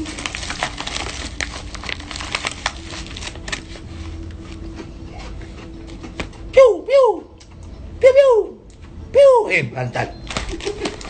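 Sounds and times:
paper bag crinkling: 0:00.0 - 0:04.7, 0:10.2 - 0:11.0.

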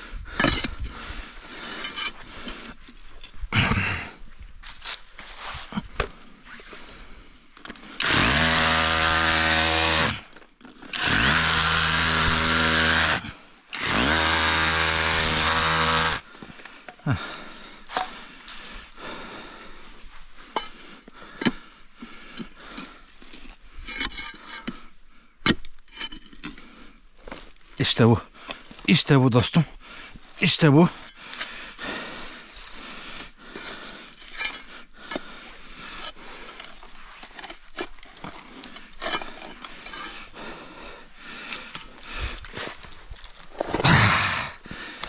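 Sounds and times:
power tool motor: 0:08.0 - 0:10.2, 0:10.9 - 0:16.2
knocks and scraping: 0:33.6 - 0:40.3.

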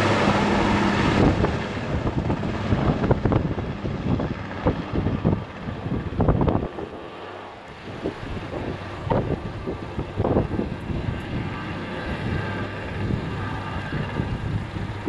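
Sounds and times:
helicopter rotor hum: 0:00.0 - 0:15.0
turbine whine: 0:00.0 - 0:15.0
wind on microphone: 0:00.0 - 0:15.0.

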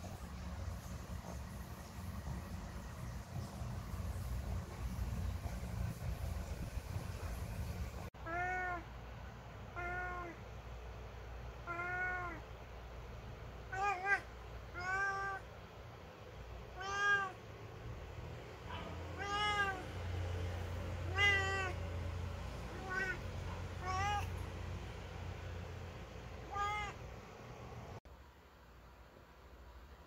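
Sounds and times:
cat meowing: 0:08.2 - 0:08.9, 0:09.7 - 0:10.4, 0:11.6 - 0:12.4, 0:13.7 - 0:15.5, 0:16.7 - 0:17.4, 0:18.8 - 0:20.0, 0:21.0 - 0:21.8, 0:22.6 - 0:24.4, 0:26.4 - 0:27.0.

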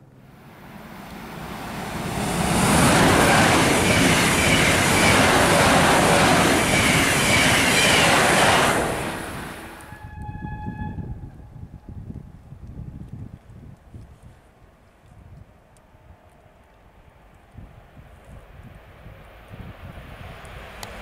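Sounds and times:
wheels rushing on rails: 0:00.0 - 0:11.0, 0:17.3 - 0:21.0
electric train passing at high speed: 0:00.0 - 0:11.3, 0:16.0 - 0:21.0.

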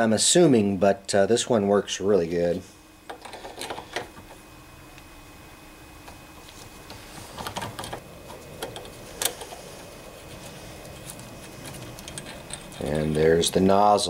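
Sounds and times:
small metallic clicks and scrapes: 0:10.3 - 0:13.4.

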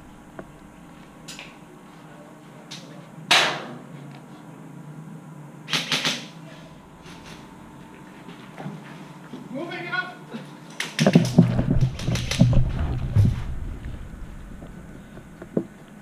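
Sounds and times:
airsoft gun shots: 0:03.3 - 0:03.7.

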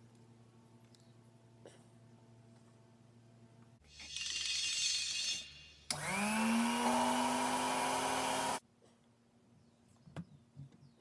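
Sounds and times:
bench drill press drilling wood: 0:05.9 - 0:08.6.

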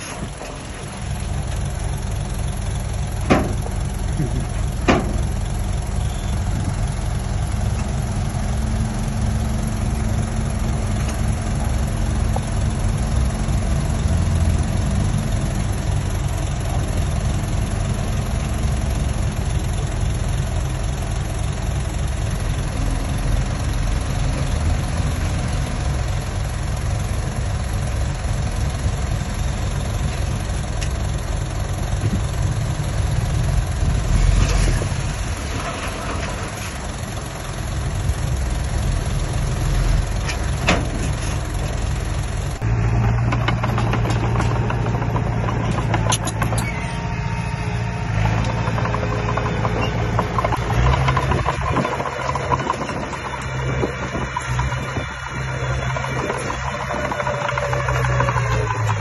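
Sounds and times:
diesel engine running: 0:00.0 - 0:59.0
metallic knocks: 0:42.9 - 0:47.1, 0:48.1 - 0:59.0.

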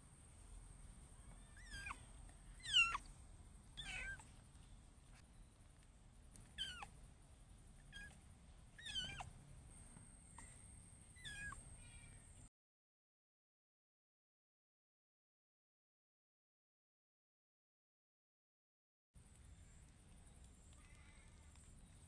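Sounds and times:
kitten mewing: 0:01.4 - 0:03.1, 0:03.8 - 0:04.3, 0:06.6 - 0:06.9, 0:07.9 - 0:08.2, 0:08.8 - 0:09.3, 0:11.2 - 0:11.6.

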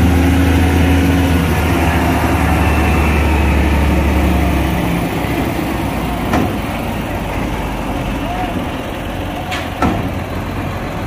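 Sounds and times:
diesel engine rumbling: 0:00.0 - 0:11.0.

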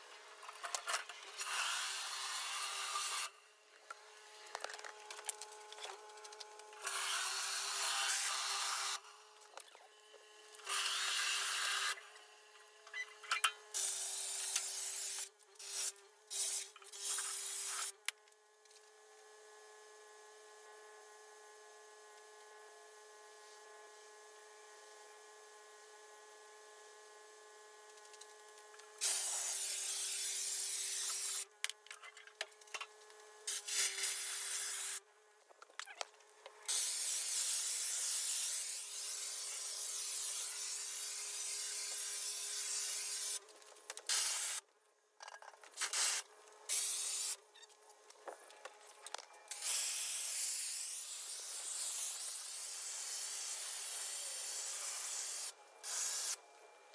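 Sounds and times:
pressure washer spray hissing: 0:54.8 - 0:56.4.

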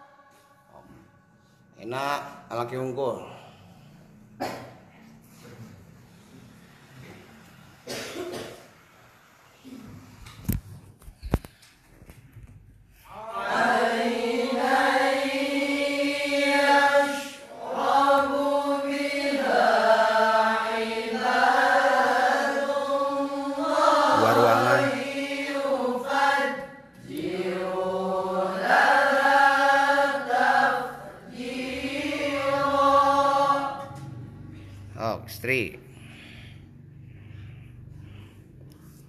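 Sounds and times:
melodic religious recitation: 0:00.0 - 0:04.6, 0:13.0 - 0:39.0.

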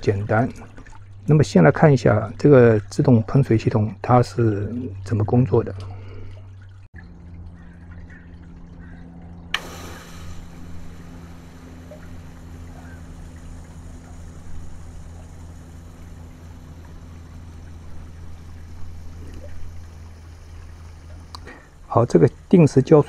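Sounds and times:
steady low hum: 0:00.0 - 0:23.0
sprinkler water spray hissing: 0:09.5 - 0:23.0.

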